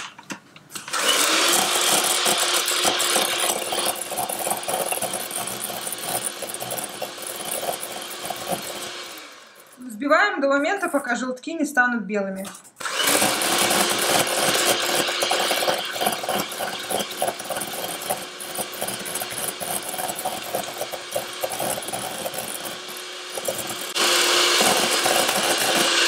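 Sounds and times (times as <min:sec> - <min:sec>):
electric hand mixer running: 0:00.9 - 0:09.9, 0:12.8 - 0:26.0
whisks clattering against metal bowl: 0:12.4 - 0:24.0.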